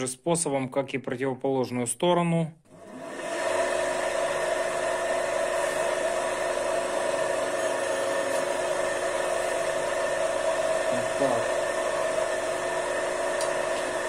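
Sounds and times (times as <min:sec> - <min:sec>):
electric motor humming with whine: 0:02.8 - 0:14.0.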